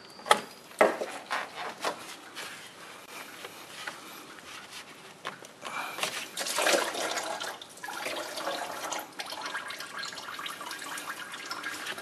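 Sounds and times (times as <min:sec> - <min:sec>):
coolant pouring and splattering: 0:06.4 - 0:12.0.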